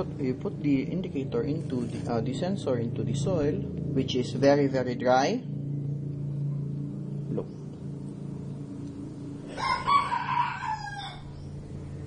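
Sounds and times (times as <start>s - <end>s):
steady low hum: 0.0s - 12.0s
rooster crowing: 9.5s - 11.6s.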